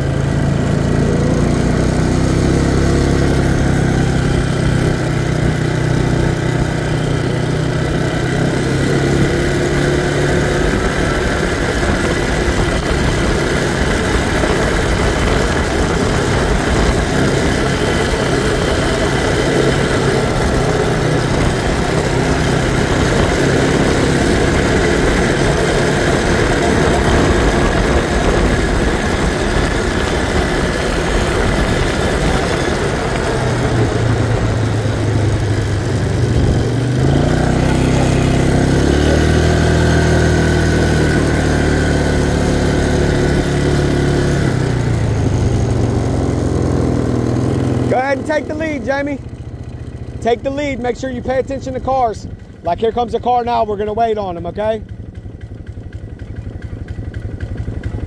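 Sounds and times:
atv engine running: 0:00.0 - 0:58.0
steady rushing noise: 0:09.2 - 0:45.8.

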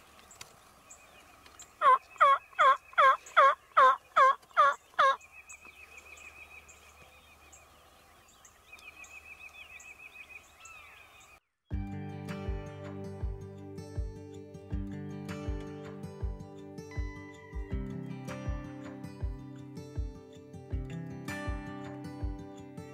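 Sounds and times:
faint songbird trill: 0:00.0 - 0:11.9
turkey yelping: 0:01.8 - 0:05.2.

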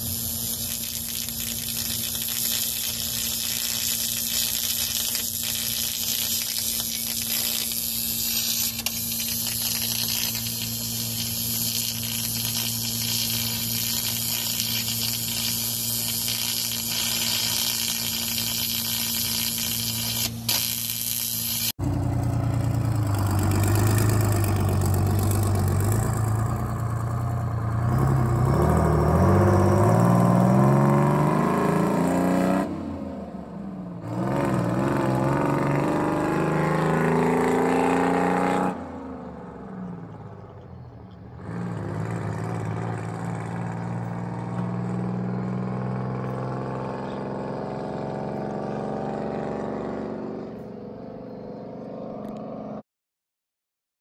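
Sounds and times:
diesel bus engine revving: 0:21.8 - 0:39.2, 0:41.3 - 0:50.6.

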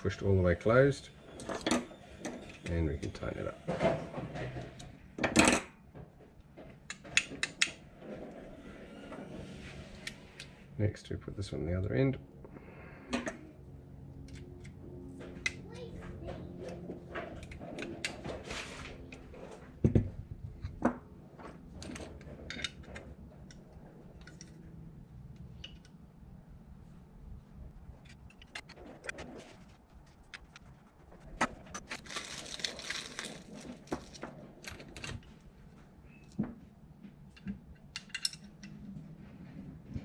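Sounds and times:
metal parts and tools clinking: 0:37.3 - 0:38.8.

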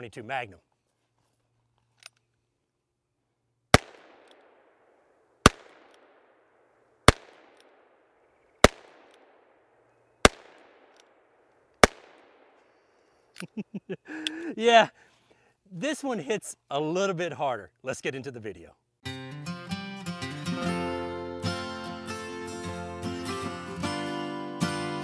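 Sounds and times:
revolver shots echoing: 0:03.8 - 0:04.6, 0:05.4 - 0:06.2, 0:07.1 - 0:07.8, 0:08.6 - 0:09.4, 0:10.2 - 0:11.0, 0:11.8 - 0:12.5.

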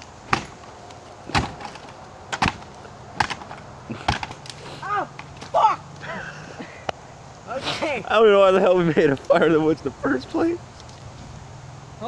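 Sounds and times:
campfire crackling and popping: 0:00.0 - 0:06.1.

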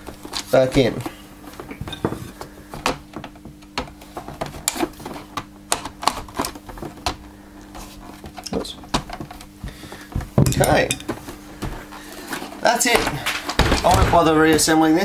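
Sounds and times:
plastic clicks and knocks: 0:00.3 - 0:07.3, 0:08.2 - 0:11.2.

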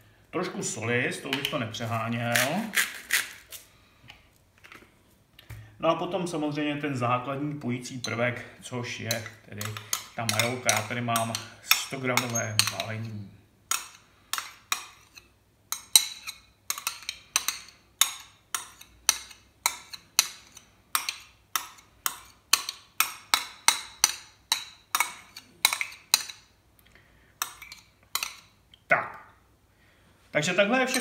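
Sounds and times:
metal spoon scraping plastic pack: 0:01.4 - 0:03.7.

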